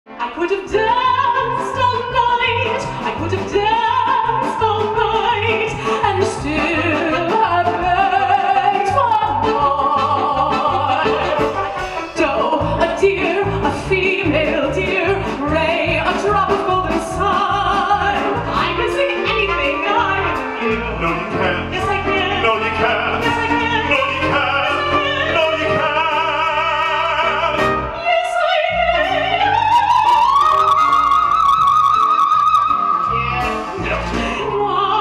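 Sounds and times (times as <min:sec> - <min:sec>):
woman singing with vibrato: 0:00.2 - 0:20.6, 0:27.9 - 0:35.0
live band playing: 0:00.7 - 0:35.0.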